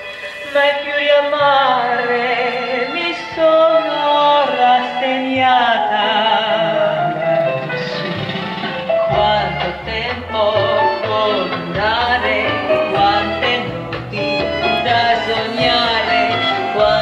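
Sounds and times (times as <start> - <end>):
person singing with vibrato: 0.0 - 17.0
sustained bass notes: 5.8 - 17.0.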